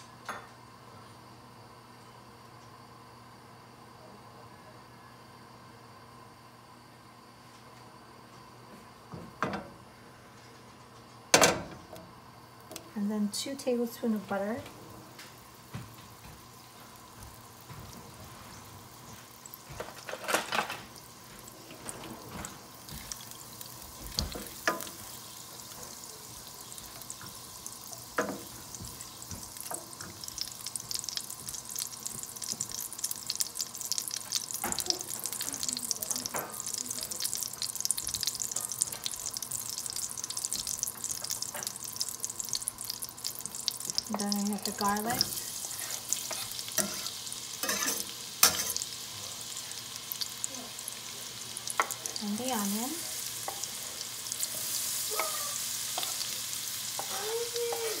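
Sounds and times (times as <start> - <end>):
butter sizzling in hot oil: 12.4 - 58.0.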